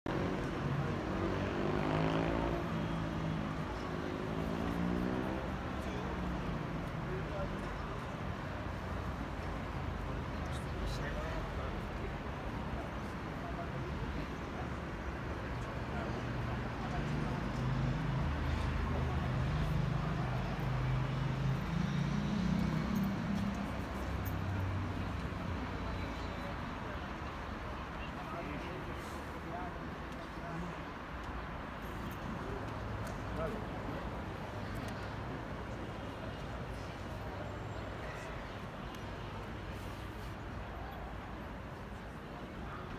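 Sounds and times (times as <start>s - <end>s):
passing vehicle engine: 0.1s - 6.8s, 16.9s - 25.8s
city traffic hum: 0.1s - 42.9s.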